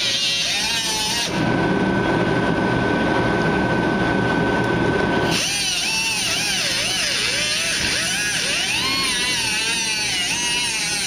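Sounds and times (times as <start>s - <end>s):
cutoff wheel tool whining: 0.0s - 1.4s, 5.2s - 11.0s.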